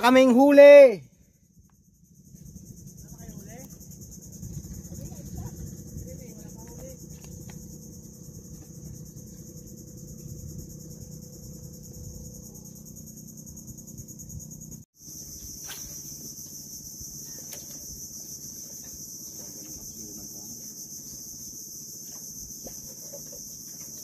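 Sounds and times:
insects droning: 0.0 - 24.0
low steady rumble: 1.1 - 14.9.

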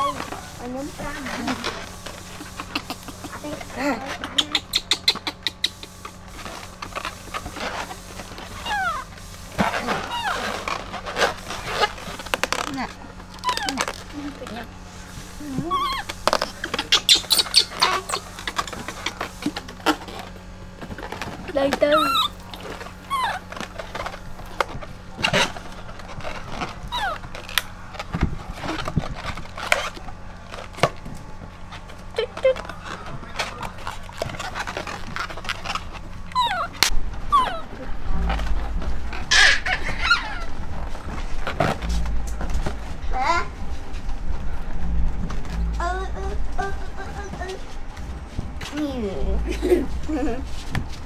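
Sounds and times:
baby monkey high calls: 0.0 - 1.3, 2.3 - 6.2, 8.5 - 12.1, 13.4 - 14.0, 15.4 - 20.0, 21.8 - 23.6, 26.5 - 27.4, 36.3 - 37.8, 39.2 - 40.6.

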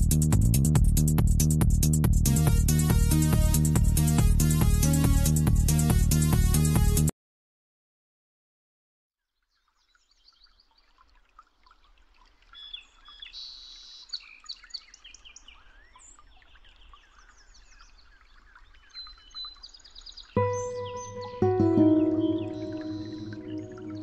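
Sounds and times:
birds chirping and calling: 20.3 - 24.0.

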